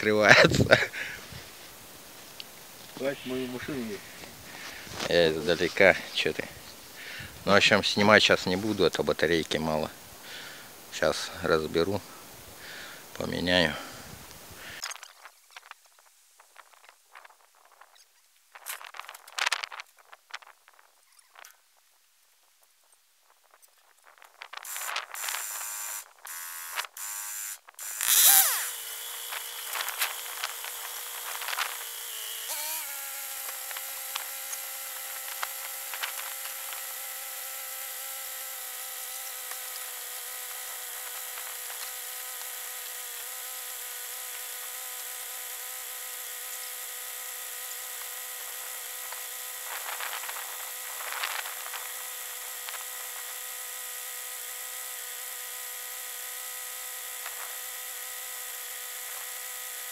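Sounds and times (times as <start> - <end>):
motor droning: 24.7 - 59.9.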